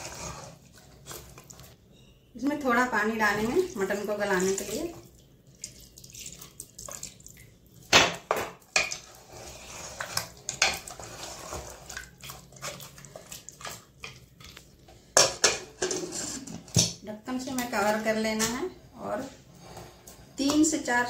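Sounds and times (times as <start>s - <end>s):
wet stirring: 0.0s - 1.9s, 3.0s - 16.6s.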